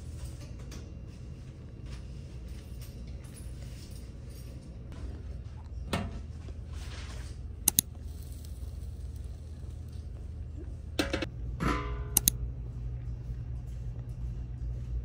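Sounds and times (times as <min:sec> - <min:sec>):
steady low rumble: 0:00.0 - 0:15.0
sharp clicks: 0:07.6 - 0:07.9, 0:12.2 - 0:12.4.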